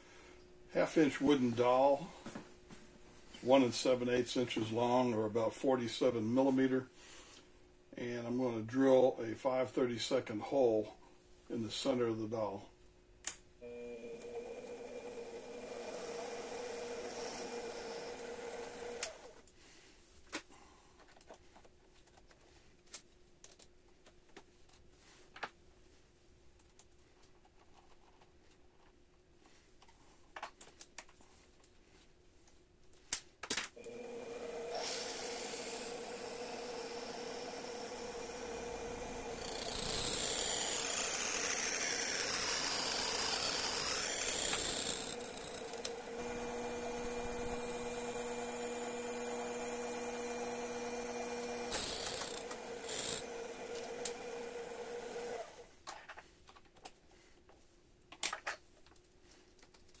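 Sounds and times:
drill bit cutting wood: 15.4s - 19.1s, 33.9s - 55.2s
lathe motor running: 33.9s - 55.5s
high wavering whine: 38.1s - 53.2s.

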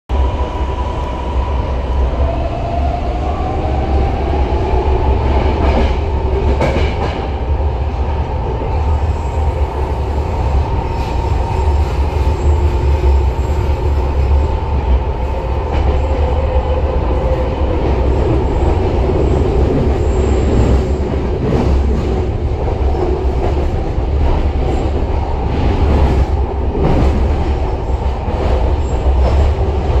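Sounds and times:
train low rumble: 0.1s - 30.0s.

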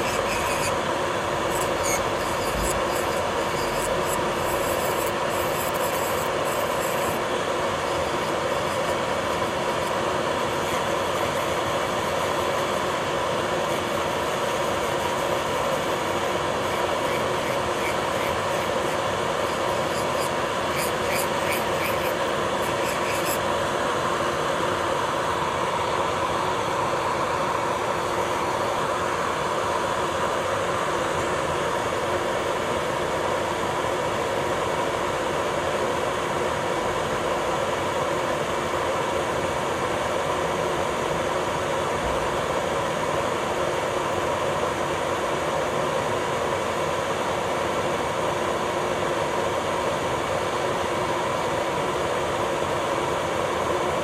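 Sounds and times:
electric nail drill grinding: 0.0s - 25.2s.

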